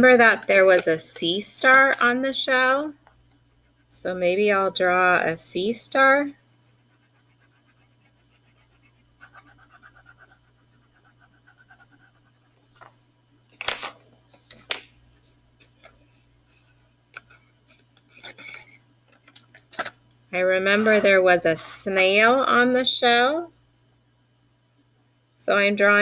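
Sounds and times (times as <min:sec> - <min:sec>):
crayon scratching on paper plate: 0:06.7 - 0:12.9, 0:20.6 - 0:21.2.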